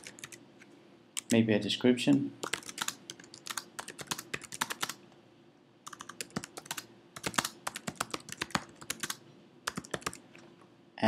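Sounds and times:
typing on computer keyboard: 0:00.0 - 0:00.4, 0:02.4 - 0:05.0, 0:05.9 - 0:10.2.

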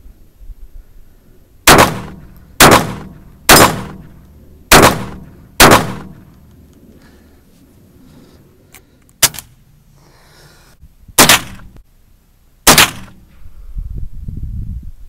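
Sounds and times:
gunshots echoing: 0:01.7 - 0:06.3, 0:11.2 - 0:11.7, 0:12.7 - 0:13.2.

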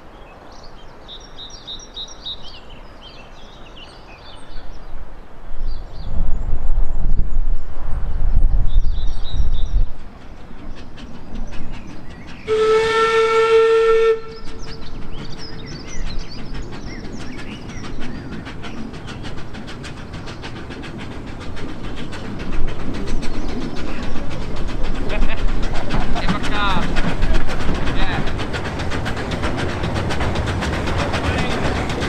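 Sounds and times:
wind buffeting microphone: 0:04.3 - 0:12.6, 0:14.2 - 0:32.0
locomotive exhaust beats: 0:09.3 - 0:32.0
steam locomotive whistle blast: 0:12.5 - 0:14.6.

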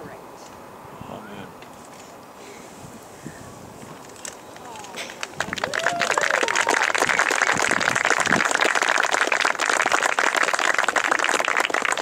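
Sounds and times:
crowd applauding: 0:05.0 - 0:12.0
cheering whoops: 0:05.4 - 0:08.4.

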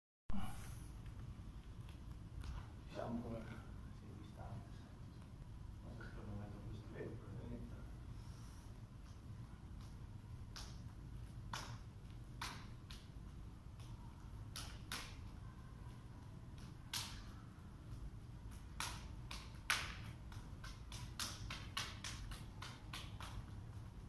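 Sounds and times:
low room hum: 0:00.3 - 0:24.0
hands slapping and tapping: 0:01.0 - 0:02.8, 0:08.8 - 0:24.0.

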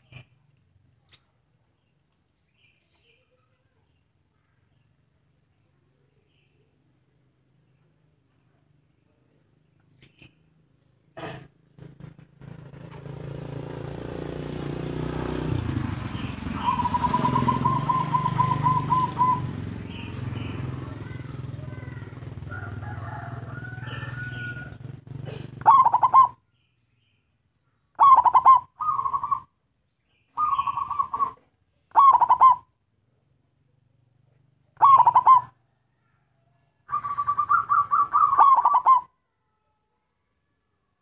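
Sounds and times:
dove cooing: 0:15.6 - 0:26.4, 0:28.0 - 0:29.5, 0:30.4 - 0:32.7, 0:34.8 - 0:35.7, 0:36.9 - 0:39.1.

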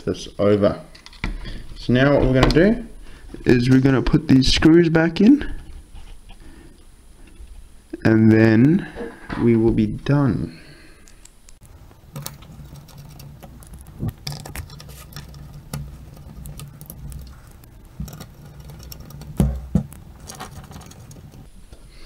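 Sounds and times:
screws clicking and scratching: 0:12.1 - 0:21.5.

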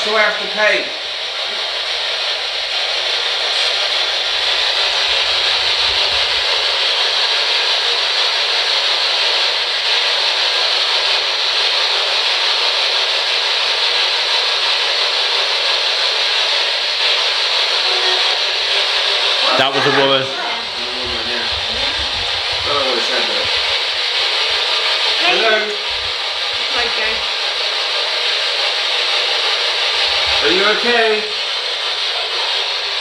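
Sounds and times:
static hiss: 0:00.8 - 0:14.0, 0:16.0 - 0:33.0.

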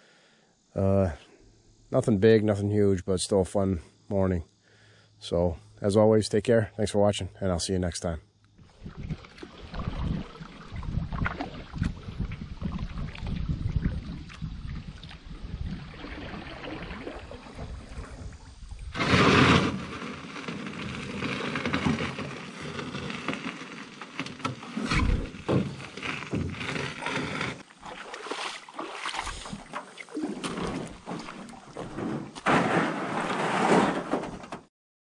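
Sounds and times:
wind buffeting the microphone: 0:08.6 - 0:19.0
water sloshing: 0:08.7 - 0:32.4.

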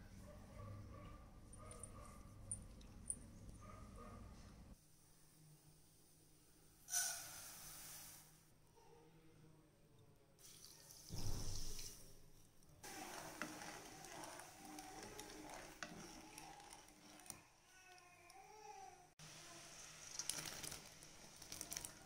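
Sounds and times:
ladle scraping sugar in pan: 0:12.8 - 0:17.5, 0:19.8 - 0:22.0
water pouring into pan: 0:12.8 - 0:17.5, 0:19.4 - 0:22.0.

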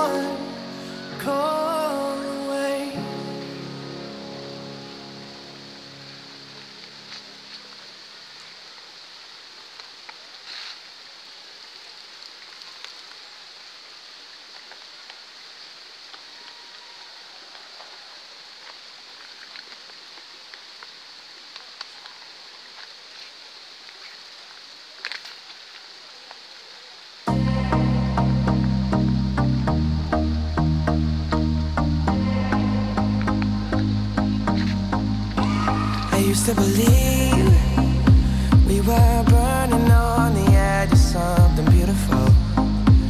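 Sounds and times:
outdoor background hiss: 0:00.0 - 0:43.0
loud music: 0:27.3 - 0:43.0.

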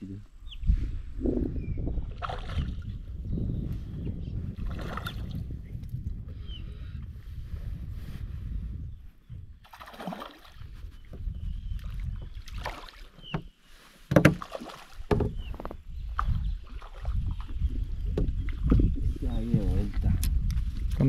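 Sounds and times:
wind rumbling on microphone: 0:00.0 - 0:21.0
water splashing: 0:02.2 - 0:02.9, 0:04.6 - 0:05.4, 0:09.6 - 0:10.7, 0:11.9 - 0:13.3, 0:14.1 - 0:15.5
sharp knocks on boat: 0:14.1 - 0:15.7.

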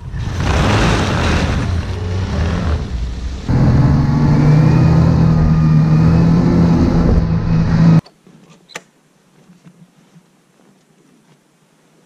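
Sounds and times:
snowmobile engine running: 0:00.0 - 0:08.0.

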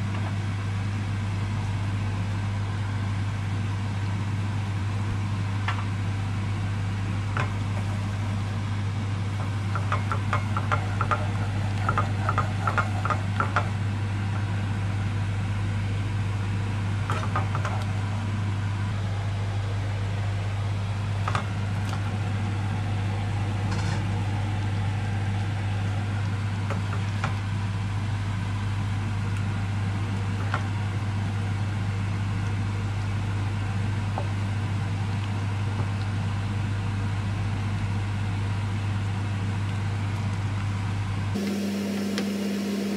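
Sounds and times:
steady low hum: 0:41.1 - 0:42.9.

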